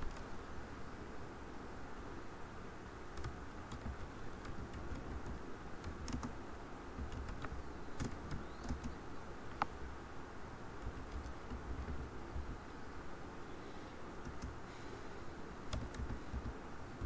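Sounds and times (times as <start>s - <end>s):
keyboard keystrokes clicking: 3.2s - 6.3s, 7.0s - 9.0s, 10.8s - 12.0s, 15.7s - 16.6s.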